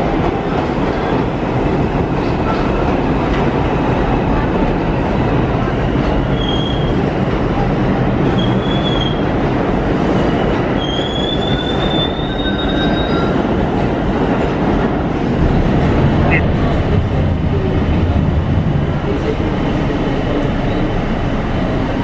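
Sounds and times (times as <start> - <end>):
subway cars rumbling: 0.0 - 22.0
high wheel squeals: 10.3 - 13.4.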